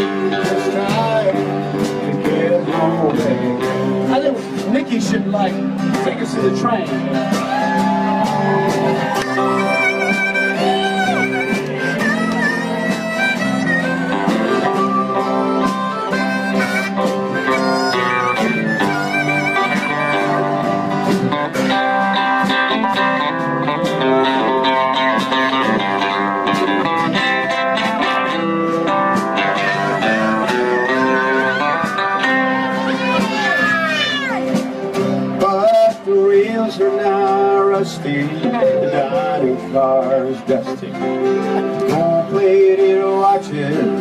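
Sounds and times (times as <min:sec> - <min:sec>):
strummed acoustic guitars: 0:00.0 - 0:44.0
harmonica solo: 0:07.9 - 0:34.9.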